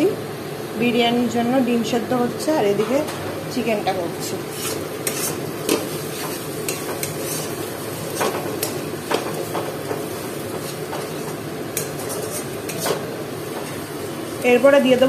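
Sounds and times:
frying hiss: 0:00.0 - 0:15.0
spatula scraping metal pan: 0:04.5 - 0:09.3, 0:10.5 - 0:13.0.

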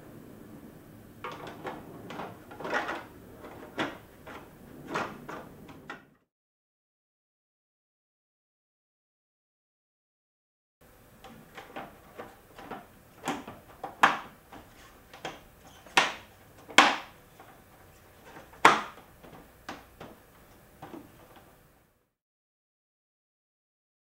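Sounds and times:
plastic panel knocks and clicks: 0:11.2 - 0:17.2, 0:18.3 - 0:20.2
plastic panel clunks: 0:18.3 - 0:20.2.

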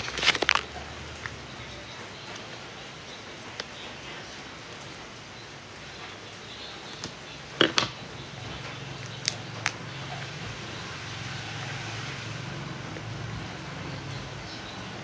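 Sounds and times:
plastic sachet crinkling: 0:00.0 - 0:01.4.

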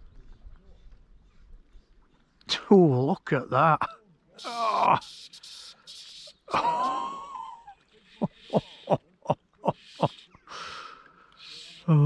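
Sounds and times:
short breathy gasps: 0:09.8 - 0:12.0.

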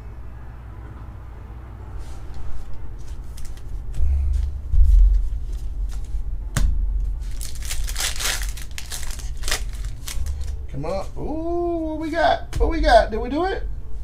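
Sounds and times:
cards being handled: 0:02.4 - 0:04.5, 0:07.2 - 0:10.6
low thumps: 0:04.0 - 0:07.4
foil pack crinkling: 0:07.2 - 0:10.6.

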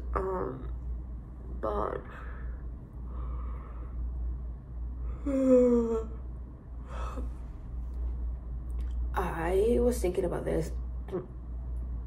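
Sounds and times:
steady low hum: 0:00.0 - 0:12.0
woman sighing: 0:05.2 - 0:06.2, 0:06.8 - 0:07.3.

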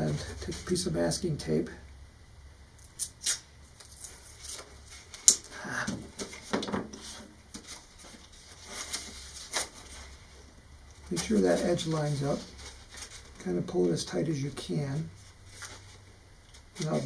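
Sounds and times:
masking tape pulled and torn: 0:02.8 - 0:05.5
paper rustling: 0:03.8 - 0:05.3, 0:06.1 - 0:10.4, 0:11.0 - 0:14.0, 0:15.2 - 0:17.0.

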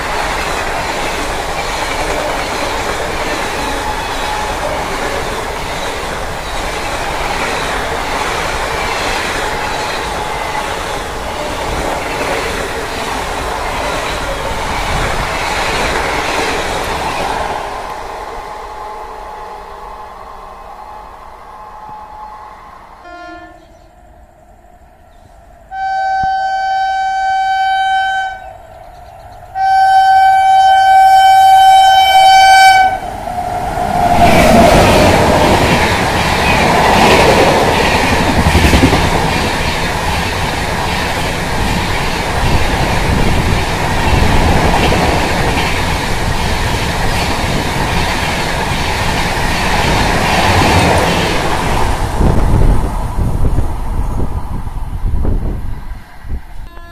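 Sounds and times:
rush of train wheels and coaches: 0:00.0 - 0:56.9
train horn blasts: 0:03.6 - 0:04.8, 0:18.0 - 0:24.1, 0:25.7 - 0:28.6, 0:29.5 - 0:33.2, 0:56.6 - 0:56.9.

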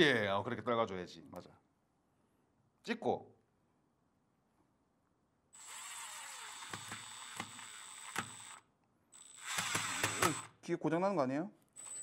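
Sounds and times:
cordless drill driving screw: 0:05.6 - 0:08.6, 0:09.2 - 0:10.5, 0:11.8 - 0:12.0.

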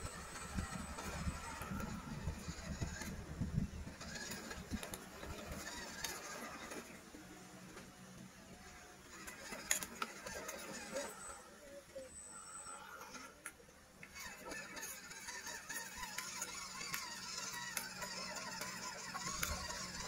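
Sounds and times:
small electric motors and gears: 0:00.0 - 0:20.0
stones clicking under tyres: 0:04.0 - 0:06.9, 0:14.8 - 0:20.0.

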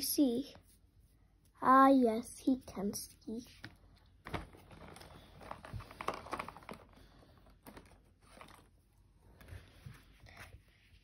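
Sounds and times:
paper rustling: 0:03.6 - 0:11.0.

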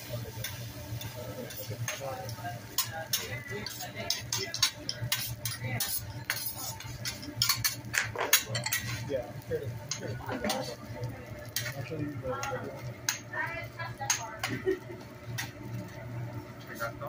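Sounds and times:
spatula scraping metal griddle: 0:02.8 - 0:09.1.

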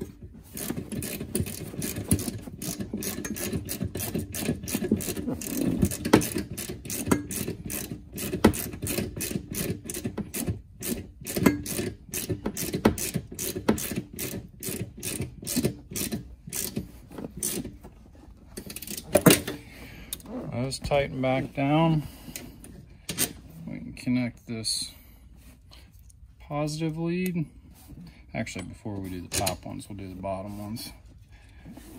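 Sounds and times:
socket ratchet clicking: 0:00.6 - 0:17.7.

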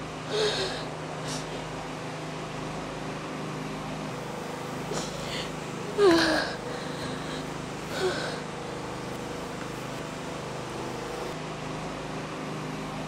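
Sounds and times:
steady low hum: 0:00.0 - 0:13.0
woman sobbing: 0:05.0 - 0:08.4.

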